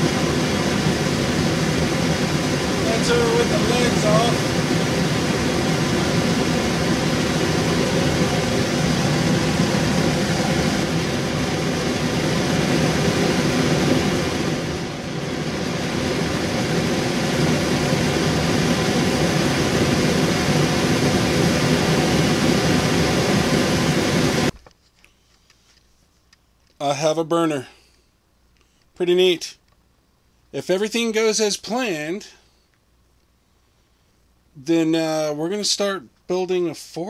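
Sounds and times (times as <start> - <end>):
gas burner hissing: 0.0 - 24.5.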